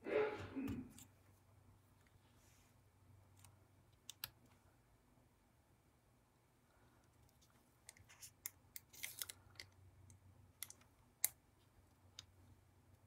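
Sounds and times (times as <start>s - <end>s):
paper crinkling: 7.4s - 9.7s.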